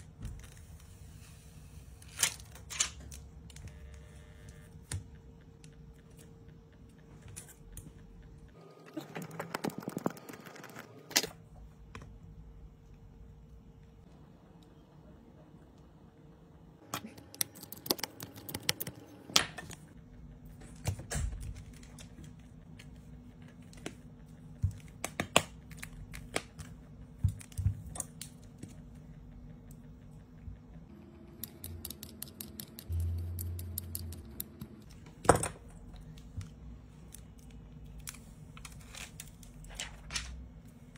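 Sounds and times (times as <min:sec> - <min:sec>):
low hum: 0:28.6 - 0:38.6.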